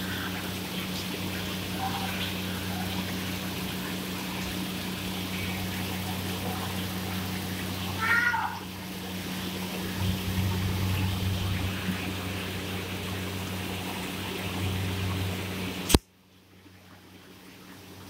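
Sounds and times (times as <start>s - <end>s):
steady low hum: 0.0s - 18.0s
water trickling into pond: 0.0s - 18.0s
short high-pitched vocal cry: 8.0s - 8.6s.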